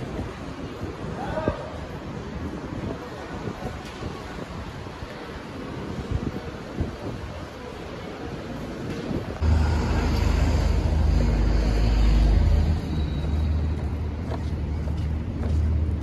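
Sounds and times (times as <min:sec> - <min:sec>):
light wind: 0:00.0 - 0:16.0
road traffic: 0:00.0 - 0:16.0
vehicle engine rumble: 0:08.4 - 0:16.0.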